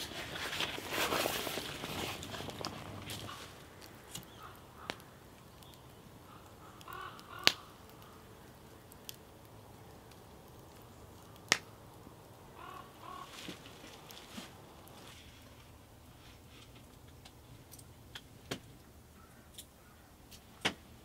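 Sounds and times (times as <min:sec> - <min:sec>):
sharp pops from fire: 0:00.0 - 0:12.0, 0:16.4 - 0:18.9
campfire crackling: 0:00.0 - 0:21.0.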